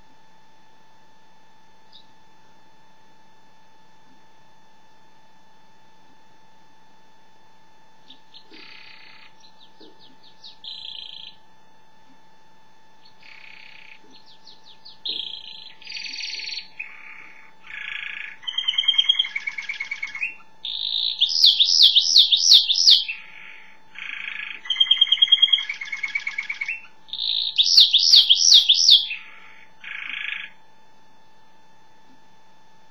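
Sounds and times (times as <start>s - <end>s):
canary singing trills: 1.9s - 2.1s, 8.0s - 11.4s, 13.0s - 30.6s.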